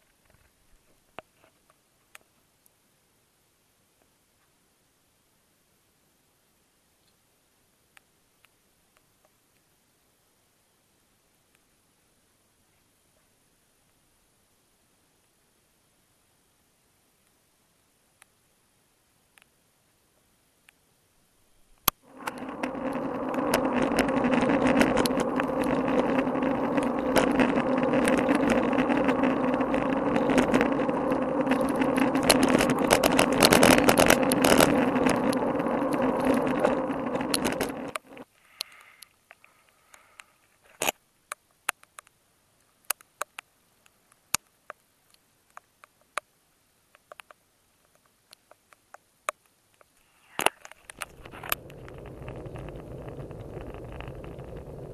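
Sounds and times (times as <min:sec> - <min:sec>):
raindrops ticking on camera case: 0:21.8 - 0:38.7, 0:46.9 - 0:54.9
bike tyres rumbling on wet road: 0:22.0 - 0:38.2, 0:50.9 - 0:54.9.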